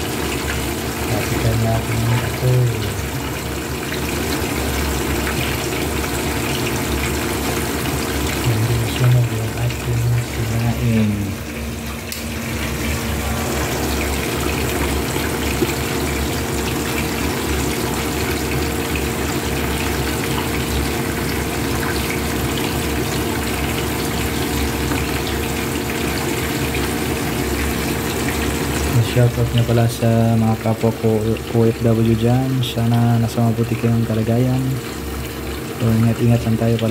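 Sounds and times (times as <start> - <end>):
fish sizzling in hot oil: 2.4 - 8.8, 12.2 - 29.0.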